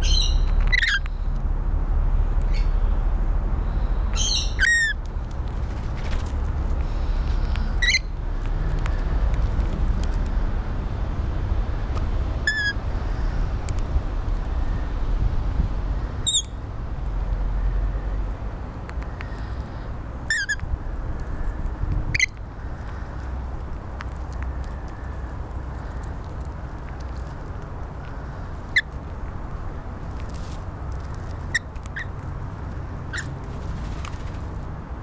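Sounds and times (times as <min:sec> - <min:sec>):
lorikeets screeching: 0:00.0 - 0:01.1, 0:04.2 - 0:05.0, 0:16.2 - 0:16.6.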